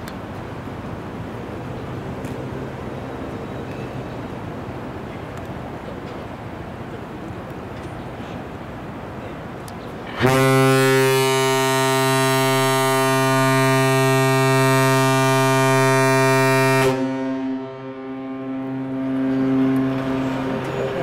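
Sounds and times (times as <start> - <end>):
ship's horn blast: 10.1 - 21.0.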